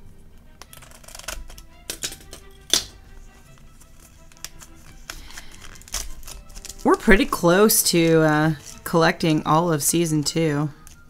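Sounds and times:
faint background music: 0.0 - 11.0
plastic packaging clicking and crackling: 0.6 - 9.0, 10.8 - 11.0.

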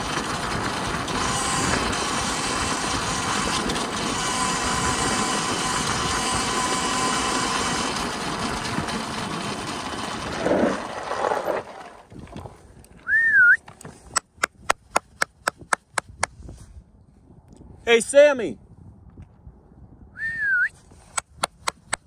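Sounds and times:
electric motor whine: 0.0 - 11.7
tyre noise: 8.6 - 16.2
wavering whistle: 13.0 - 13.6, 20.1 - 20.8
wind noise: 13.6 - 22.0
sharp clicks: 21.1 - 22.0.

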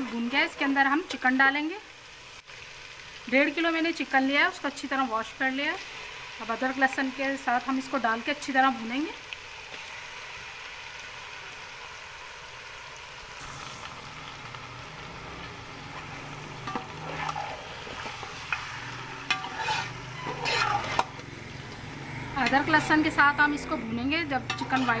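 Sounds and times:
chicken sizzling in hot oil: 0.0 - 25.0
metal spoon knocking and scraping: 19.2 - 21.1.

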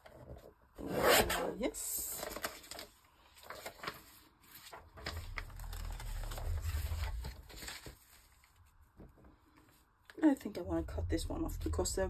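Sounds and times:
papers rustling: 2.1 - 9.8
low rumble: 5.0 - 7.7, 10.5 - 12.0.

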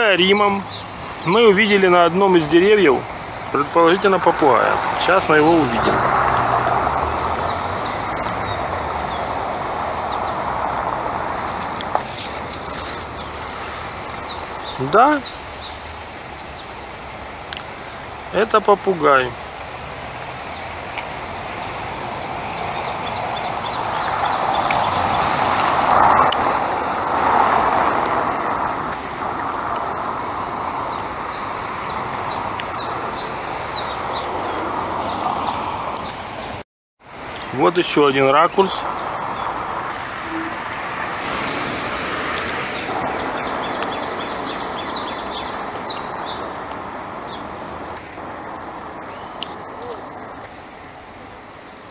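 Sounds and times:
road traffic passing: 0.0 - 51.9
high bird chirps: 12.7 - 17.5.

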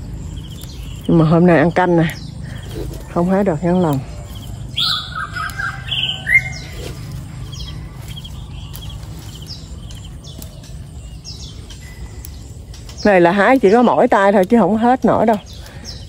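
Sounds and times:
birds chirping: 0.0 - 16.0
low steady hum: 0.0 - 16.0.

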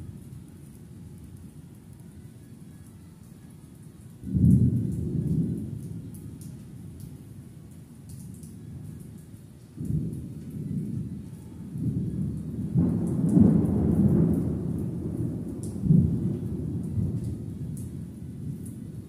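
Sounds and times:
thunder rumbling: 4.3 - 7.0, 9.8 - 19.0.

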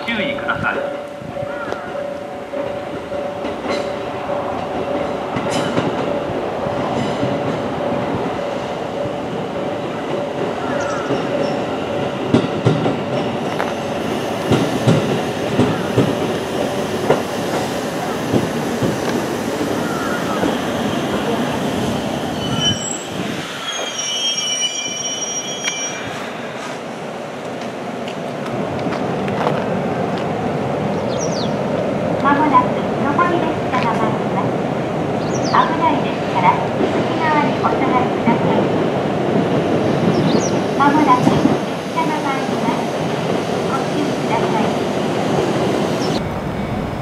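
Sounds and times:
electric train rumbling: 0.0 - 47.0
train brakes squealing: 19.6 - 26.8.

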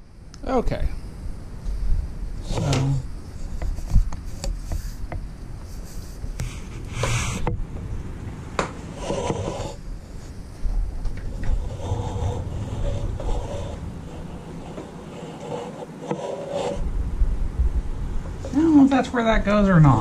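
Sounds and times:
close breaths: 11.3 - 16.8.

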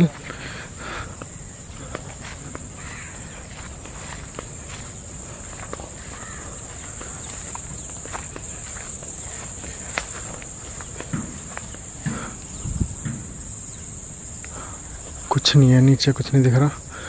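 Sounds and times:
footsteps crunching dry grass: 0.0 - 15.3
insects chirring: 0.0 - 17.0
soft thumps: 10.9 - 13.5.

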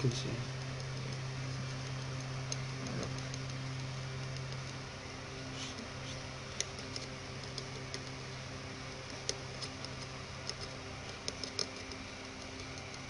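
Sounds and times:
steady low hum: 0.0 - 13.0
tweezers tapping circuit board: 0.5 - 4.9.

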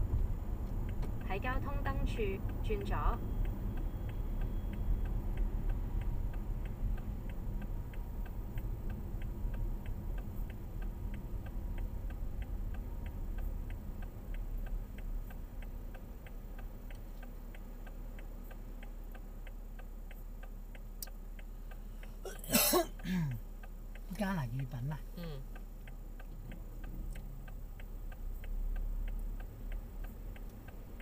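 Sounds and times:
idle hum: 0.0 - 31.0
road and engine noise: 0.0 - 31.0
car turn indicator clicking: 0.1 - 31.0.

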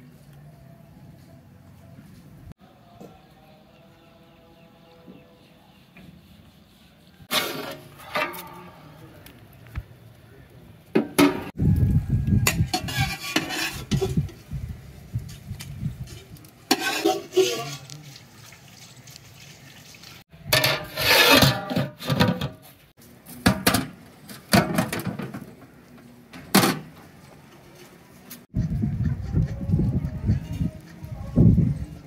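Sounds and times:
metal pots and utensils clattering: 7.3 - 8.9, 11.0 - 11.6, 12.4 - 14.4, 16.1 - 22.7, 23.4 - 25.6, 26.3 - 26.9.

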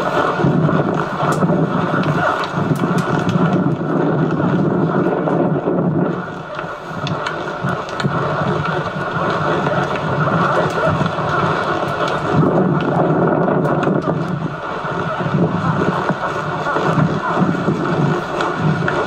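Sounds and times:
wind rumble on microphone: 0.0 - 19.0
faint clicks: 6.4 - 14.4.

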